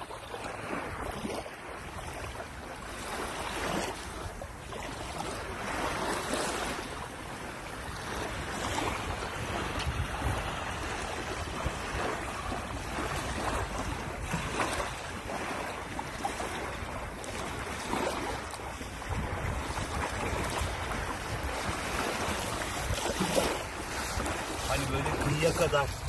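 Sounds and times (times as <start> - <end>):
shallow sea water washing: 0.0 - 26.0
wind buffeting microphone: 0.0 - 26.0
person splashing through water: 11.8 - 26.0.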